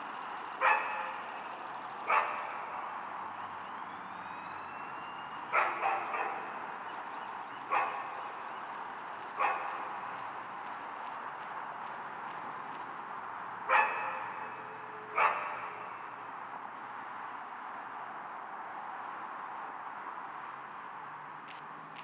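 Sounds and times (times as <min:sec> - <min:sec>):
distant dog barking: 0:00.6 - 0:01.2, 0:02.0 - 0:02.7, 0:05.5 - 0:06.7, 0:07.5 - 0:08.5, 0:09.2 - 0:10.1, 0:13.7 - 0:15.9
city background hiss: 0:06.5 - 0:22.0.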